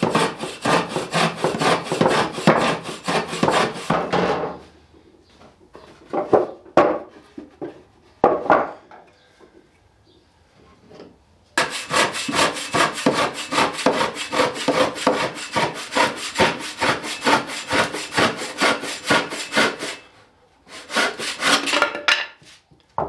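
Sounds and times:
hand saw cutting wood: 0:00.0 - 0:04.3, 0:11.6 - 0:20.1, 0:20.7 - 0:22.0.

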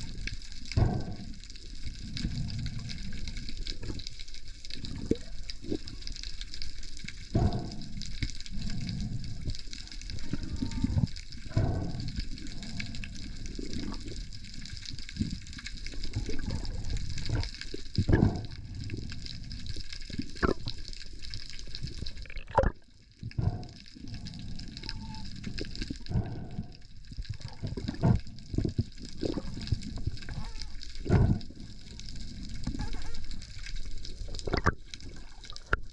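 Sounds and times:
low rumble: 0:00.0 - 0:03.6
water sloshing and rushing: 0:00.0 - 0:35.9.

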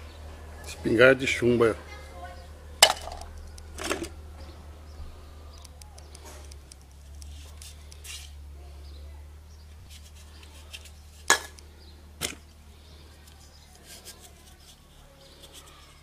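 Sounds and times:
sharp knocks on concrete: 0:02.8 - 0:03.3, 0:11.3 - 0:11.6
aluminium cans clicking and rattling: 0:02.8 - 0:04.1.

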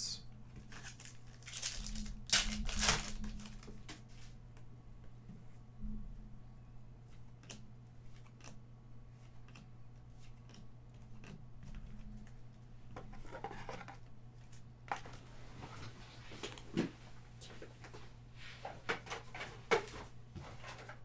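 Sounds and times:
cards shuffling: 0:00.6 - 0:04.3.

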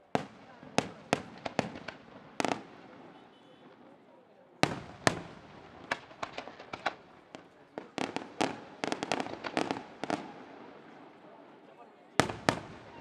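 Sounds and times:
firework shells bursting: 0:04.6 - 0:10.6.

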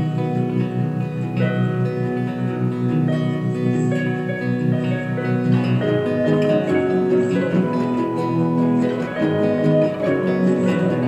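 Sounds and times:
acoustic guitar chords: 0:00.0 - 0:11.0.

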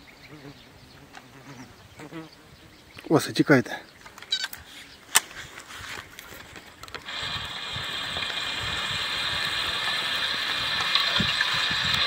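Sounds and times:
fishing reel gear whir: 0:07.0 - 0:12.0.

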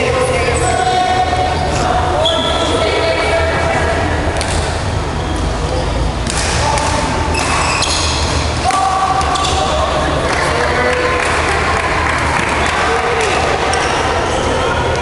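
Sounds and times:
voices in hall: 0:00.0 - 0:15.0
rackets hitting shuttlecock: 0:04.4 - 0:04.7, 0:06.2 - 0:09.8.

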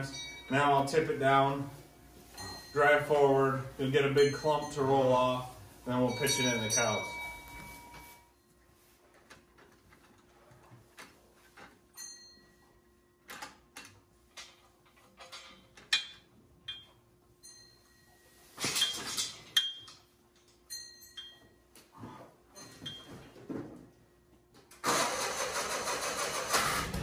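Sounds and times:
ringing metallic notes: 0:00.0 - 0:08.4
steel frame clanking and rattling: 0:18.6 - 0:19.8.

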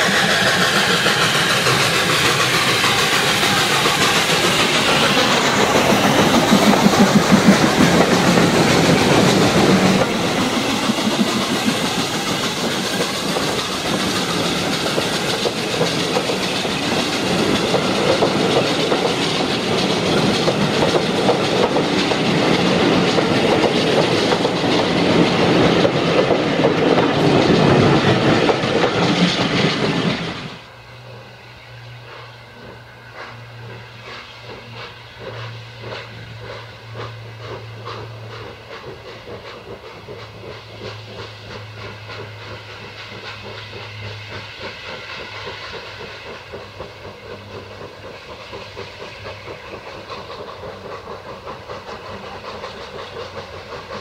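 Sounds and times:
distant steam train: 0:00.0 - 0:54.0
steam train rumbling and hissing: 0:00.0 - 0:54.0.

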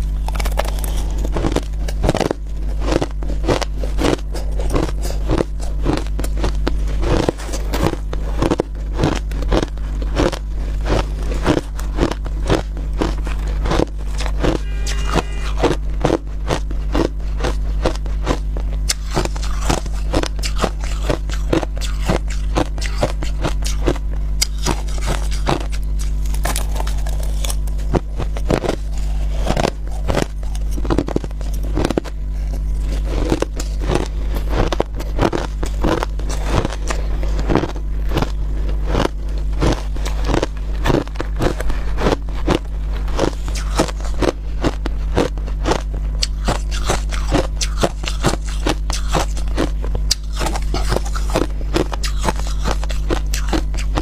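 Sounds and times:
steady low hum: 0:00.0 - 0:54.0
crushed ice crunching: 0:00.1 - 0:15.8, 0:26.2 - 0:45.8.

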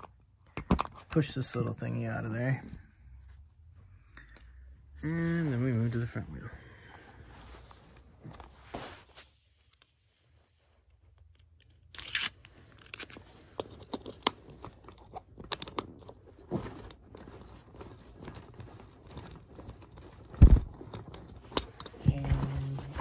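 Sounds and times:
hands handling rubber tire: 0:12.5 - 0:23.0.

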